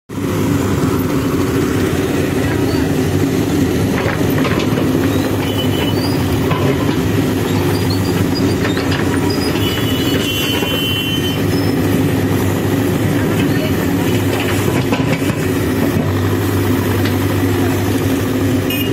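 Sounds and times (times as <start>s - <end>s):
diesel engine under load: 0.1s - 18.9s.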